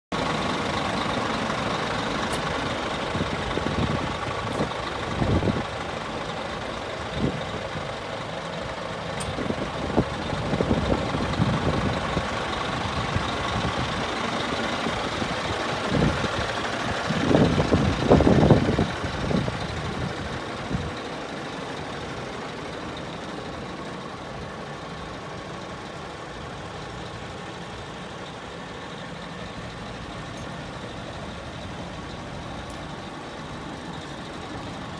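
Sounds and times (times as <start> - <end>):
low rumbles: 0.1 - 34.9
truck engine idling: 0.1 - 34.9.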